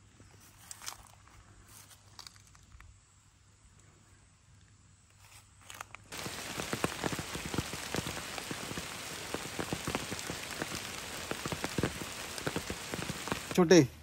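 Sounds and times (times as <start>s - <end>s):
rain drops pattering: 6.1s - 13.9s.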